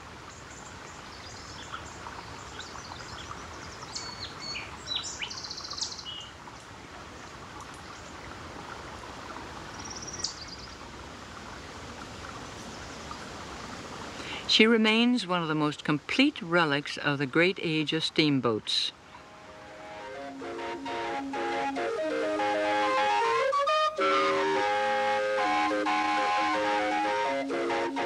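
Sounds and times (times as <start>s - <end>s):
steady background hiss: 0.0s - 28.0s
small birds chirping: 0.3s - 6.4s, 9.7s - 10.8s.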